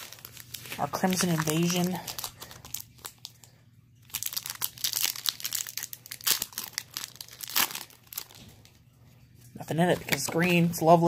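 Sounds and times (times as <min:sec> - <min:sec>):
foil wrapper crinkling: 0:00.0 - 0:08.8.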